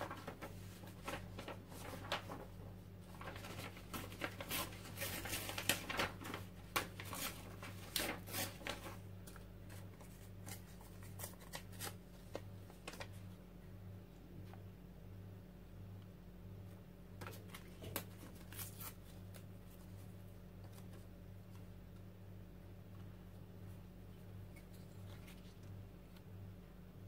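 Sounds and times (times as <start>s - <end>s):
paper rustling and crinkling: 0.0s - 13.3s, 17.2s - 21.7s.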